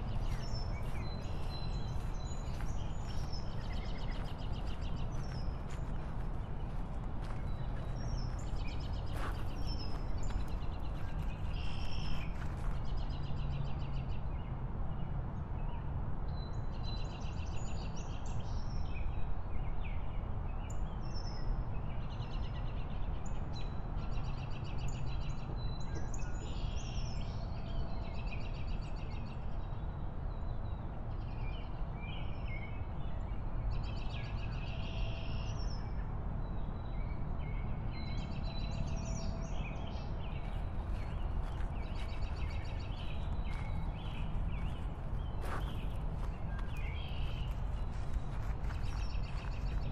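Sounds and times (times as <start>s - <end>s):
wind and bike riding noise: 0.0s - 49.9s.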